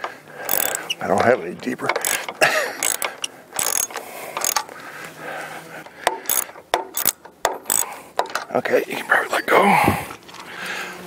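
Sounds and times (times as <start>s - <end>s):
ratchet wrench clicking: 0.0s - 4.7s, 5.8s - 8.5s.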